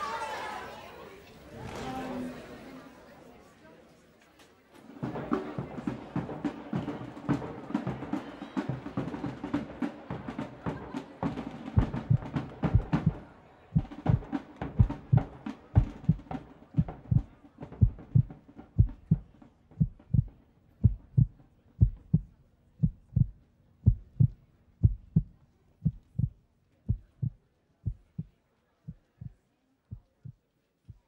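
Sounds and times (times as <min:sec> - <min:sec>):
heartbeat thumping: 0:11.8 - 0:13.2, 0:13.8 - 0:31.0.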